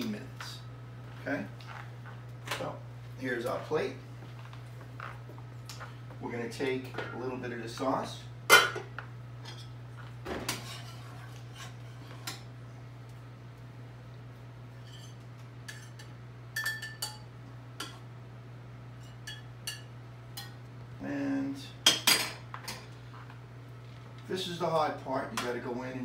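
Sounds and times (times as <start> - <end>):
steady low hum: 0.0 - 26.0
spoon clinking and scraping pots: 14.8 - 18.0.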